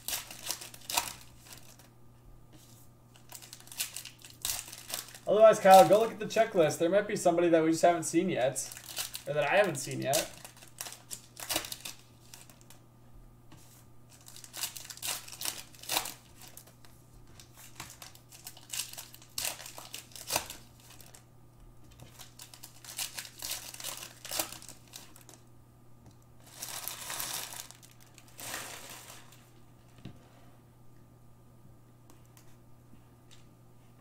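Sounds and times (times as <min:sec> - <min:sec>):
plastic wrappers crinkling: 0:00.0 - 0:01.9, 0:03.1 - 0:06.1, 0:08.6 - 0:12.8, 0:14.1 - 0:21.2, 0:21.9 - 0:25.4, 0:26.4 - 0:29.6.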